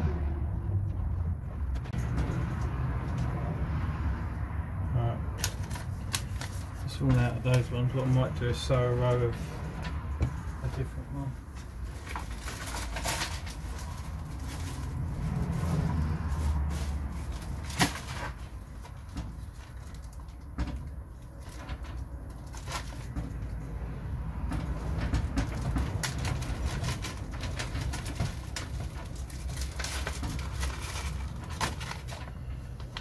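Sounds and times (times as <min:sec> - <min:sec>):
steady low rumble: 0:00.0 - 0:17.8
paper packet rustling: 0:05.4 - 0:09.6, 0:11.5 - 0:20.5, 0:25.6 - 0:33.0.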